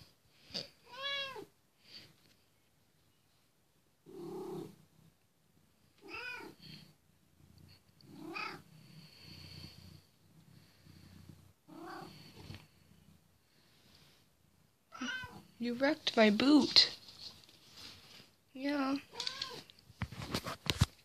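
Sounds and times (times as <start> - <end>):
cat meowing: 0.8 - 1.5, 6.0 - 6.6, 14.9 - 15.4, 19.1 - 19.7
cat purring: 4.0 - 17.0.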